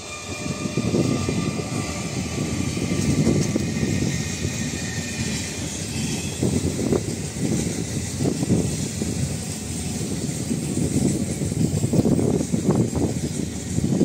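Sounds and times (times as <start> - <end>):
electric motors whining: 0.0 - 9.8
train rumble: 0.0 - 14.0
train wheels clattering on rails: 0.0 - 14.0.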